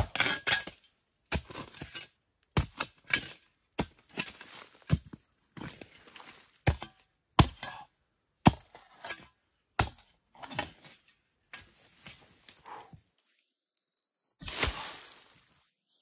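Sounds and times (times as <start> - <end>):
spade scraping through soil: 0.0 - 7.8, 8.5 - 12.8, 14.4 - 15.3
spade chopping into hard earth: 2.6 - 5.8, 6.6 - 7.8, 8.4 - 10.9, 14.4 - 14.9.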